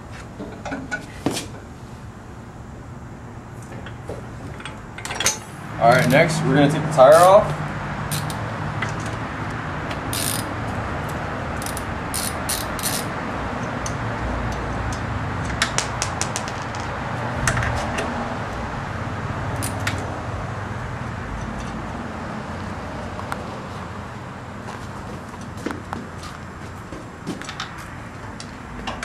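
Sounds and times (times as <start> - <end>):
socket wrench clicking: 8.1 - 9.0, 10.1 - 10.5, 11.1 - 16.4.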